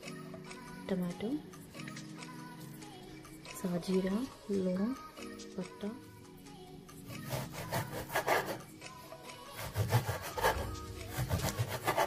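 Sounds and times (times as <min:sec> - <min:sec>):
knife sawing through frozen meat: 0:07.1 - 0:08.6, 0:09.6 - 0:12.0.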